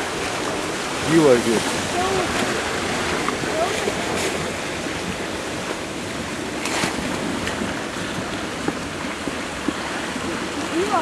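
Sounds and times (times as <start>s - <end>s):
river water rushing: 0.0s - 11.0s.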